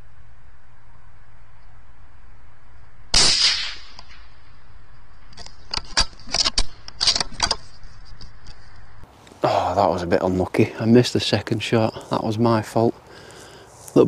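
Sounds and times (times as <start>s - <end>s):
rifle shot crack: 3.1s - 4.5s
rifle bolt clicks and clatters: 5.3s - 8.6s.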